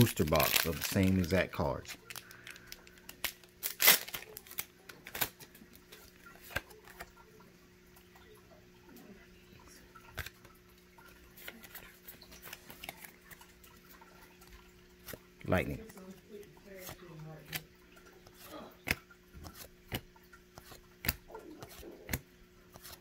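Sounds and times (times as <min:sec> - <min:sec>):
cards clicking: 0:00.0 - 0:07.1, 0:18.8 - 0:23.0
foil wrappers crinkling: 0:00.0 - 0:07.2, 0:11.2 - 0:14.0.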